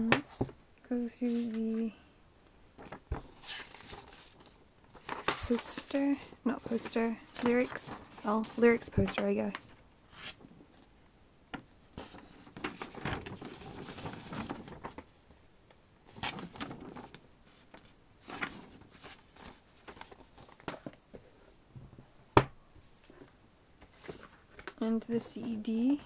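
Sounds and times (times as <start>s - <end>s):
paper rustling and crinkling: 2.8s - 10.5s, 12.0s - 15.2s, 16.0s - 21.0s, 23.0s - 26.0s.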